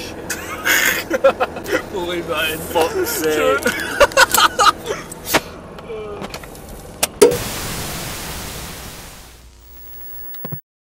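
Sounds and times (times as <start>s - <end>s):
static hiss: 7.2s - 10.6s.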